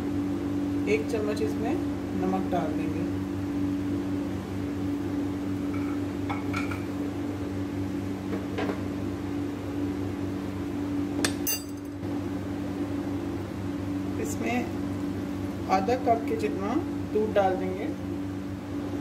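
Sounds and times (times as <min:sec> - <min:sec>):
low electrical hum: 0:00.0 - 0:19.0
utensils clinking on steel bowl: 0:11.3 - 0:12.0.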